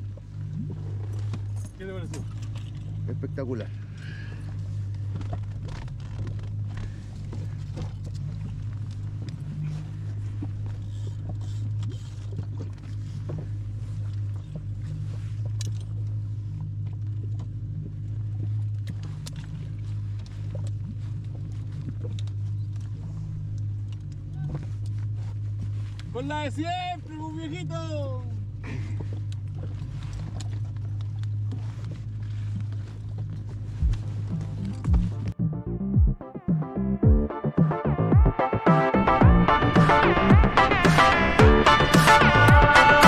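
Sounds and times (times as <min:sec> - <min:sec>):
outboard motor running: 0:00.0 - 0:43.0.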